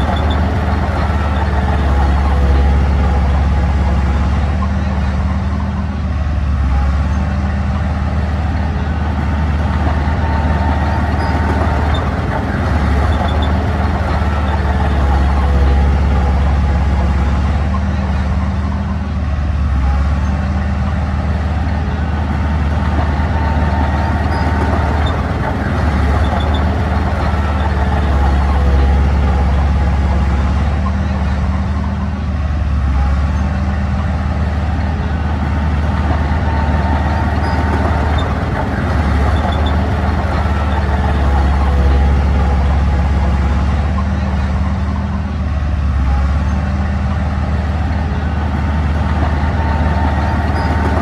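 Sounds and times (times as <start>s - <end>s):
diesel engine deep rumble: 0.0s - 51.0s.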